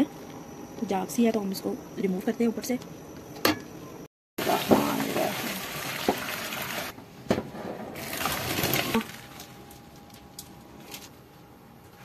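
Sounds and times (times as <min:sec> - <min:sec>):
faint steady hum: 0:00.0 - 0:04.1, 0:06.9 - 0:12.0
water pouring into colander: 0:04.4 - 0:06.9, 0:08.0 - 0:09.4.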